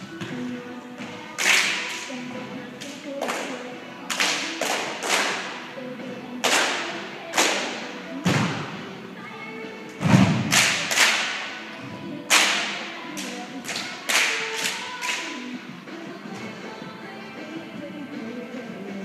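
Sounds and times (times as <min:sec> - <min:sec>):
group clapping and stomping: 0:01.0 - 0:02.1, 0:02.8 - 0:05.6, 0:06.4 - 0:08.7, 0:10.0 - 0:11.6, 0:12.3 - 0:15.3.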